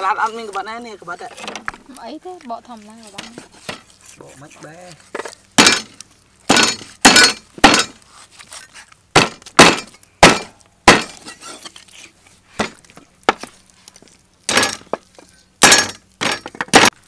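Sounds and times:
cleaver chopping bone on wood: 5.2 - 5.9, 6.5 - 8.0, 9.1 - 11.2, 12.6 - 13.6, 14.5 - 15.0, 15.6 - 17.0.

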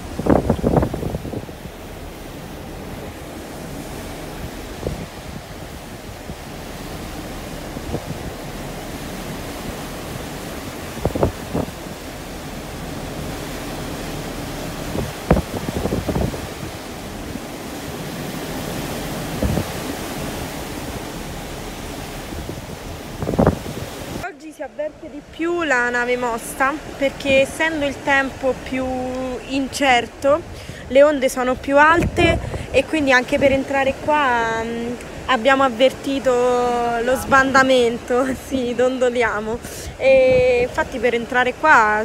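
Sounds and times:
wind rushing: 0.0 - 24.3, 31.8 - 33.6
sea water churning along hull: 0.0 - 42.0
wind buffeting microphone: 0.0 - 42.0.

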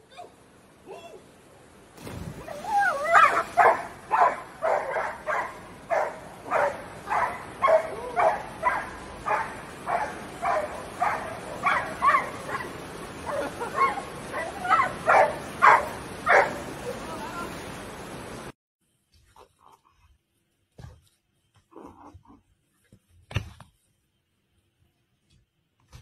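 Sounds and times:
dog barking and whining: 2.6 - 12.7.

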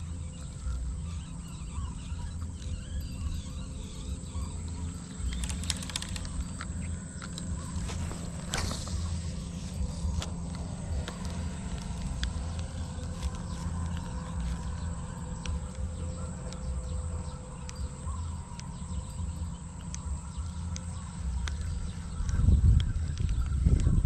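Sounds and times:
low wind rumble: 0.0 - 24.0
small clicks: 5.1 - 9.2.

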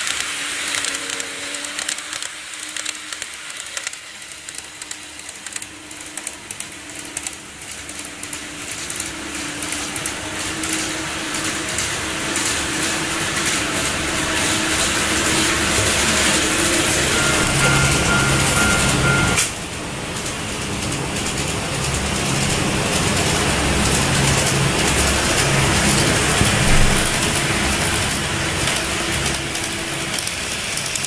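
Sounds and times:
model train motor hum: 0.0 - 19.4, 21.2 - 31.0
model train wheels clicking: 0.0 - 31.0.

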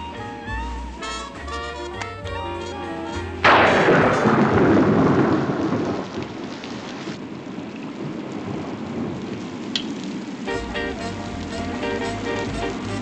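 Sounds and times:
steady rain: 0.0 - 13.0
thunderclap rolling: 3.4 - 9.7.

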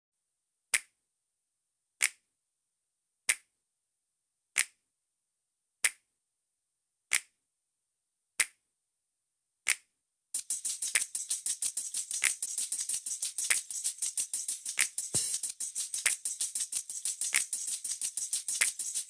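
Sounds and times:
sampled finger snap: 2.0 - 2.2, 4.6 - 4.8, 5.8 - 6.0, 7.1 - 7.4, 8.4 - 8.6, 9.7 - 19.0.

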